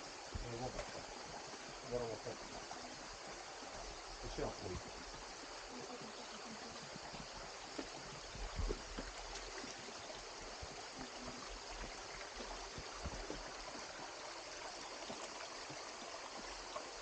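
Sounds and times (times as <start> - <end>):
stream running over rocks: 0.0 - 17.0
footsteps on stones: 7.7 - 9.8, 11.8 - 13.9.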